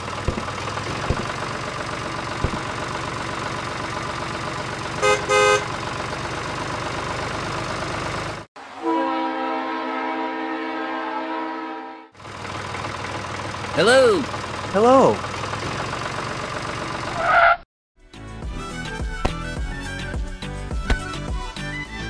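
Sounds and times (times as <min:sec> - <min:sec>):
short horn beeps: 0:05.0 - 0:05.7
toy train horn note: 0:05.0 - 0:05.7, 0:08.8 - 0:12.1.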